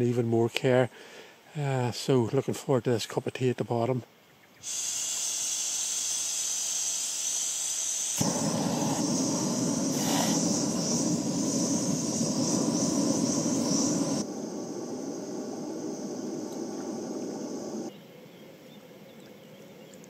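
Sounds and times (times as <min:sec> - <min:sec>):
burner flame rushing: 0:04.6 - 0:17.9
gas hissing from stove burner: 0:04.6 - 0:17.9.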